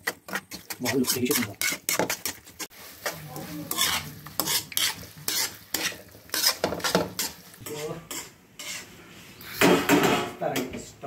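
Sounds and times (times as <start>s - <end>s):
spoon scraping a pan: 0.0s - 10.1s.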